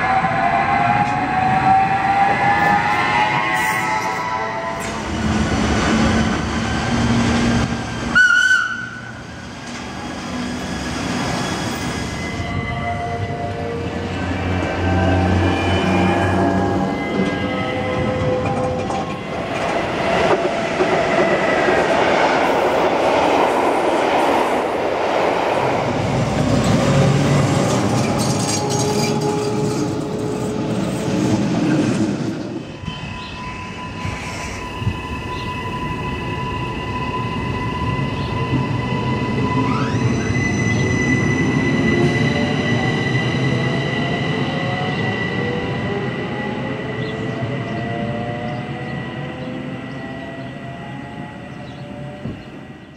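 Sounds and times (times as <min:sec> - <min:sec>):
train wheels rumbling on rail: 0:00.0 - 0:52.9.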